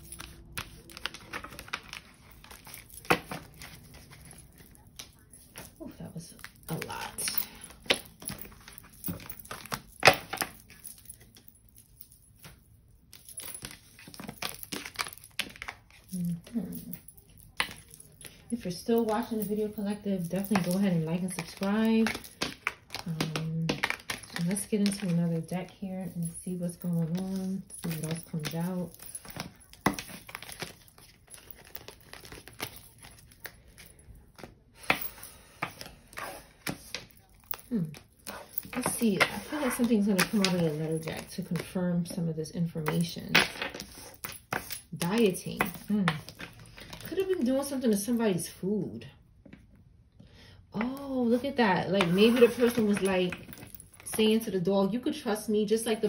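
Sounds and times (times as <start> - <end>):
cards rustling: 0.0 - 48.4, 50.8 - 54.5
cards clicking and tapping on table: 43.3 - 47.1.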